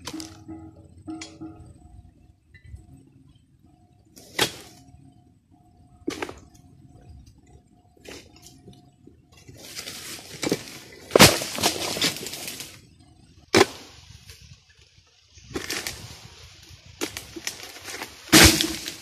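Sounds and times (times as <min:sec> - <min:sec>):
palm fronds rustling and crashing: 0:09.6 - 0:12.8, 0:15.4 - 0:19.0
blade chopping palm fronds: 0:09.9 - 0:12.8, 0:13.5 - 0:13.9, 0:17.0 - 0:19.0.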